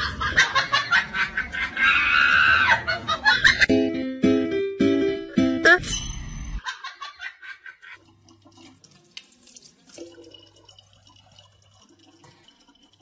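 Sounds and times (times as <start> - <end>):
water trickling into plastic bottle: 8.0 - 13.0.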